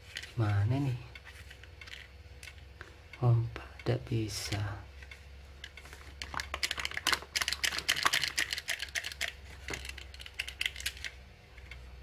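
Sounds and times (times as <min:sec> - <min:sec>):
plastic toy clicks and rattles: 0:01.8 - 0:02.6, 0:04.5 - 0:11.8.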